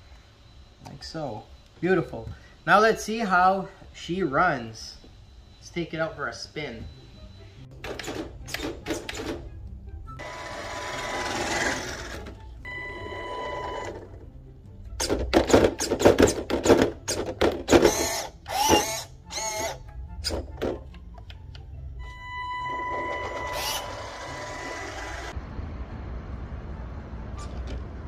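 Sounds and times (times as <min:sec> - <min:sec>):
music playing: 0:05.6 - 0:25.4
toy car motor whirring: 0:10.2 - 0:12.4, 0:17.7 - 0:19.8, 0:23.2 - 0:25.4.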